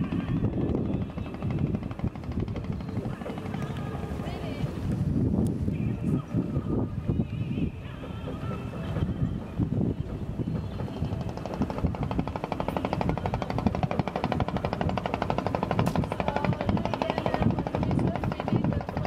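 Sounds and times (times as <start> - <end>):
low machinery rumble: 0.0 - 19.0
rapid mechanical clatter: 0.2 - 3.8, 10.4 - 19.0.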